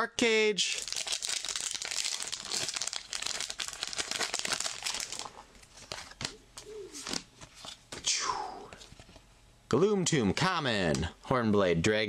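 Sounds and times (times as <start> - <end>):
foil wrapper crinkling and tearing: 0.7 - 6.3.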